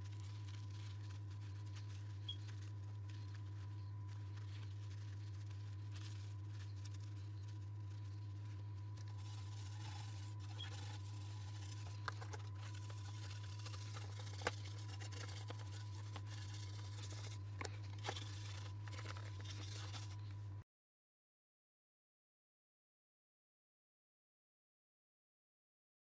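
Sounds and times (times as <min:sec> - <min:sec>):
cloth wiping plastic: 0:00.0 - 0:20.3
steady low hum: 0:00.0 - 0:20.6.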